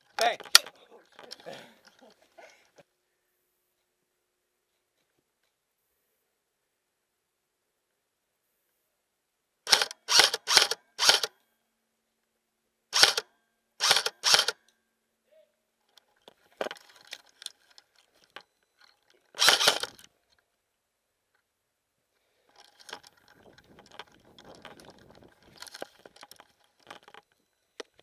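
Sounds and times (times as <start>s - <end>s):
gear rattling: 15.9s - 20.1s, 22.5s - 27.4s.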